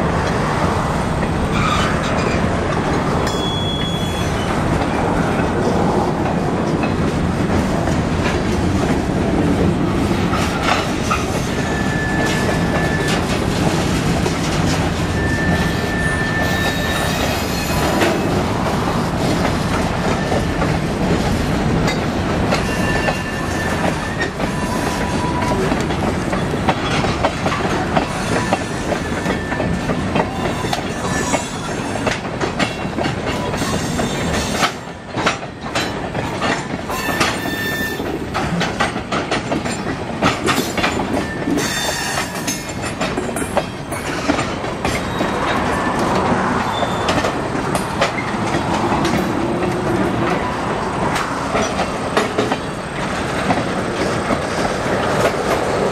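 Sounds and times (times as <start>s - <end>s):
freight train rumbling past: 0.0s - 55.9s
wheels clicking over rail joints: 1.1s - 55.9s
high wheel squeals: 1.5s - 2.3s, 3.3s - 4.5s, 11.2s - 13.4s, 15.1s - 18.0s, 22.6s - 25.6s, 28.1s - 32.1s, 36.9s - 38.0s, 41.1s - 42.7s, 45.0s - 47.2s.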